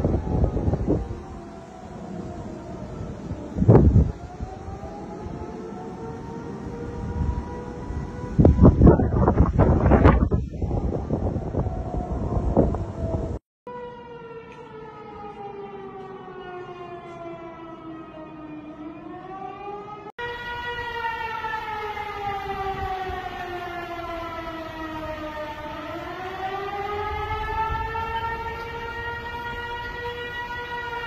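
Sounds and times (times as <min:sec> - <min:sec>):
wind rumble on microphone: 0:00.0 - 0:13.4, 0:20.5 - 0:31.0
warning siren wailing: 0:00.0 - 0:31.0.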